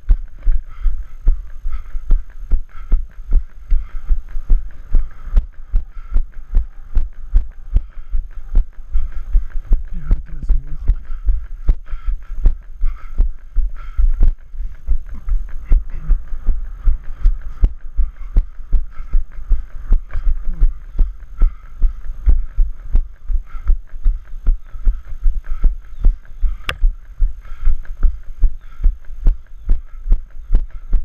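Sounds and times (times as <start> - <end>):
sharp click: 26.6 - 26.9.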